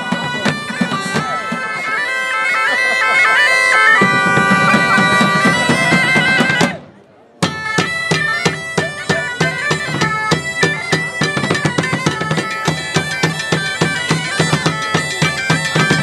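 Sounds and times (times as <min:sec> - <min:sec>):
side drum beating: 0:00.0 - 0:02.0, 0:04.0 - 0:06.8, 0:07.4 - 0:16.0
bagpipes playing a lively melody: 0:00.0 - 0:06.8, 0:07.4 - 0:16.0.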